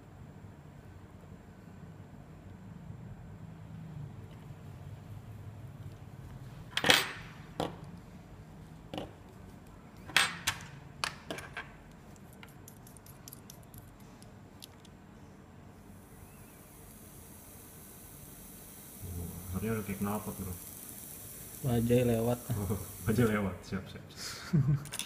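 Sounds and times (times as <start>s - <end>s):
metal parts clinking and tapping: 10.1s - 15.0s.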